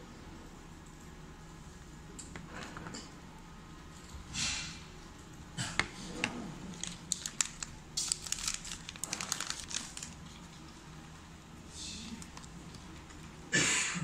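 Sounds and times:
plastic film crinkling: 6.6s - 10.8s, 12.1s - 13.2s.

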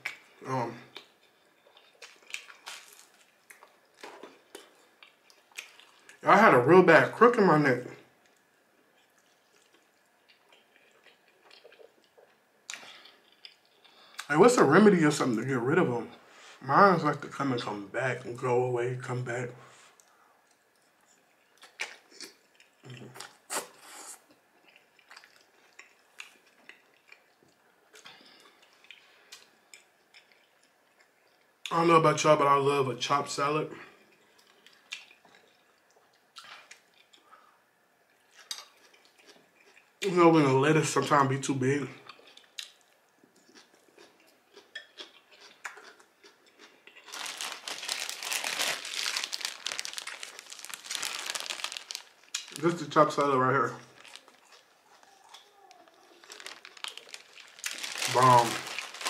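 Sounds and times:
plastic bag crinkling: 2.0s - 3.3s, 47.0s - 59.0s
wet chewing and slurping: 53.8s - 59.0s.

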